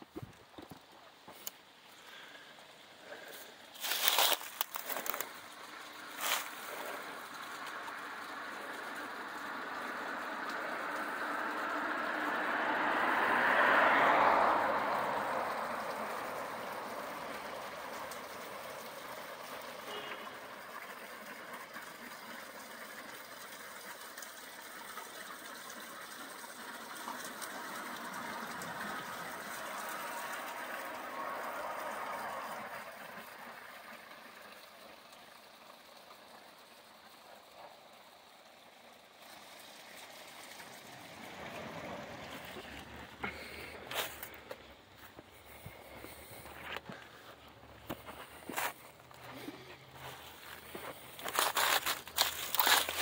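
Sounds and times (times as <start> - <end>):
vehicle passing: 3.0 - 20.0, 26.6 - 34.4, 39.2 - 53.0.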